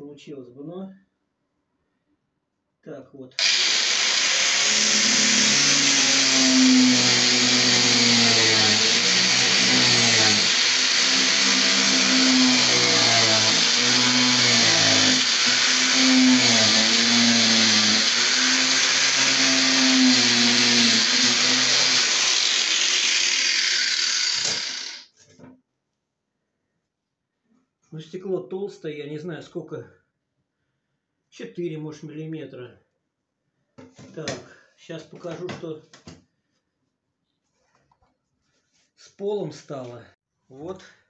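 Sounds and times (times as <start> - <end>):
angle grinder cutting plastic: 3.4 - 25.1.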